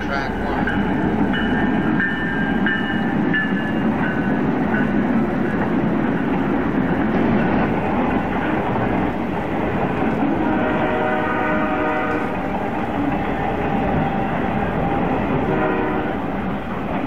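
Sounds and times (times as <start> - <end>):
locomotive bell ringing: 0.0 - 8.6
model train running rumble: 0.0 - 17.0.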